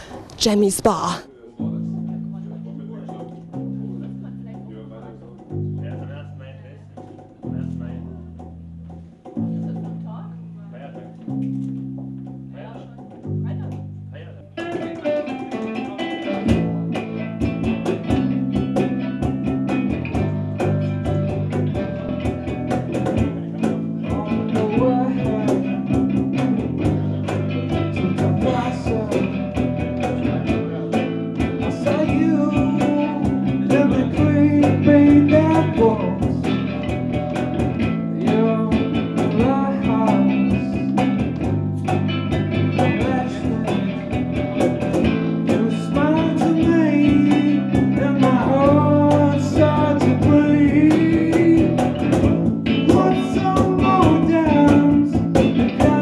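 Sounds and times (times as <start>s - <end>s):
acoustic guitar: 0.0s - 56.0s
electric bass: 1.6s - 56.0s
hand-played cajon: 1.6s - 56.0s
man singing into a microphone: 23.6s - 26.0s, 27.0s - 29.5s, 30.2s - 36.5s, 38.2s - 41.0s, 42.8s - 44.2s, 45.2s - 56.0s.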